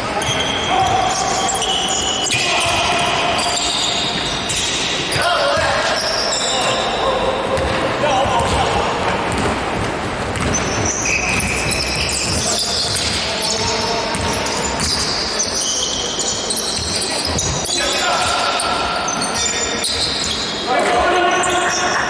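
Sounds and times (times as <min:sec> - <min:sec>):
sneakers squeaking on court: 0:00.0 - 0:22.0
players calling out: 0:00.2 - 0:09.3
basketball bouncing: 0:07.6 - 0:15.1.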